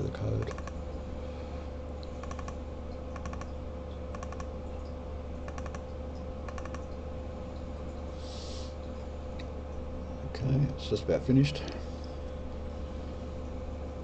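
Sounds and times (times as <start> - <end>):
low electrical hum: 0.0 - 14.0
computer mouse clicking: 0.4 - 0.8, 2.1 - 3.5, 4.1 - 4.5, 5.5 - 5.8, 6.5 - 6.9.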